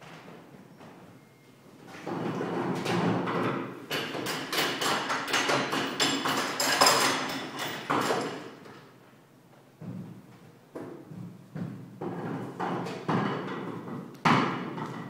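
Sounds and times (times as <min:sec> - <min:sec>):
knocks taps and clatter: 0:02.1 - 0:08.8, 0:10.8 - 0:15.0.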